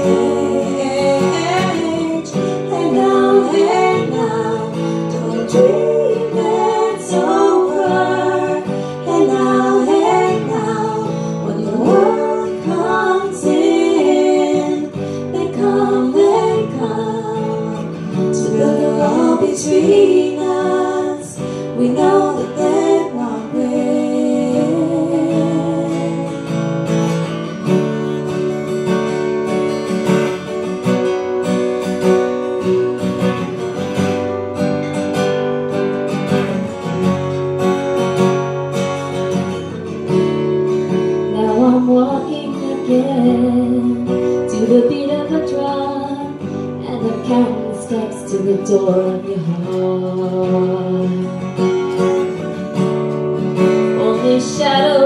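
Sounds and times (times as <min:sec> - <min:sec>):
voices singing wordless harmonies: 0:00.0 - 0:27.5, 0:40.9 - 0:52.6, 0:53.6 - 0:55.0
acoustic guitar strumming: 0:00.0 - 0:55.0.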